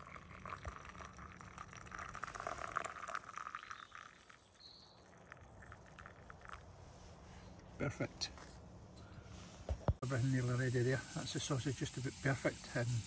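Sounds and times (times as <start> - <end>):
hot drink pouring into metal mug: 0.0 - 6.6.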